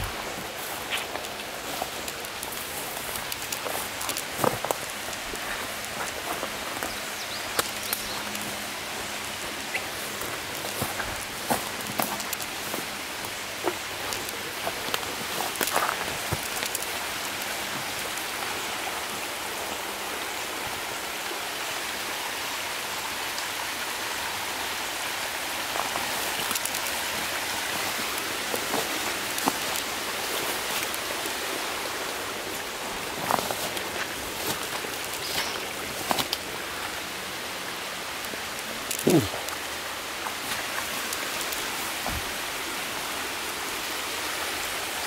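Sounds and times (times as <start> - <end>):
footsteps through brush: 0.0 - 18.4, 25.7 - 37.3, 38.2 - 42.7
water spilling over a levee: 0.0 - 45.0.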